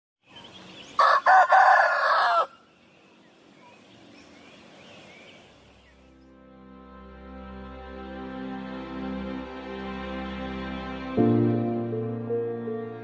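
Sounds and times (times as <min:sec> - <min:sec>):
rooster crowing: 0:01.0 - 0:02.6
soft music: 0:05.9 - 0:13.0.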